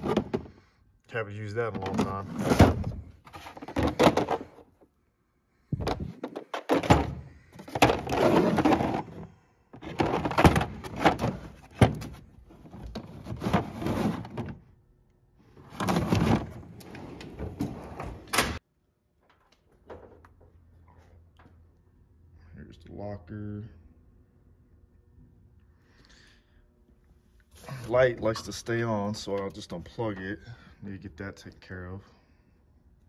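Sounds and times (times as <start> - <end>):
plastic cases scraping and rattling: 0.0 - 0.6, 1.6 - 4.7, 5.7 - 14.6, 15.6 - 18.3.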